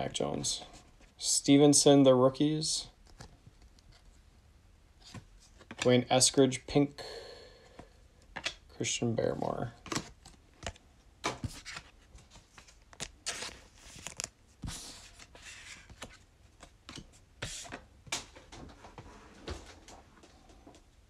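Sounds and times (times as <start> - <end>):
cards and wrapper rustling: 9.8 - 16.2.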